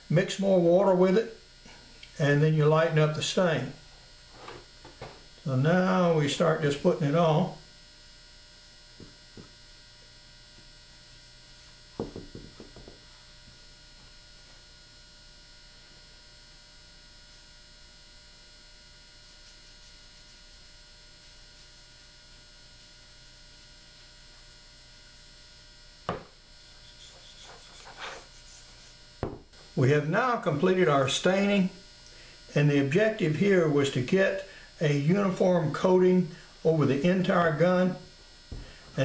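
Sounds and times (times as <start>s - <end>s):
electrical mains hum: 0.0s - 39.0s
sharp knock: 12.0s - 12.9s.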